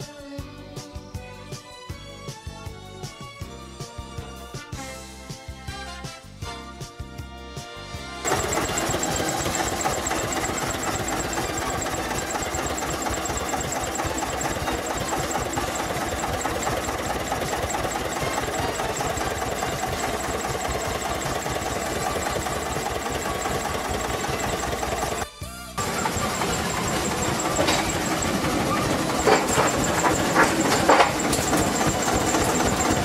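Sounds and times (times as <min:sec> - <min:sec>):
diesel locomotive engine idling: 0:08.3 - 0:25.2, 0:25.8 - 0:33.0.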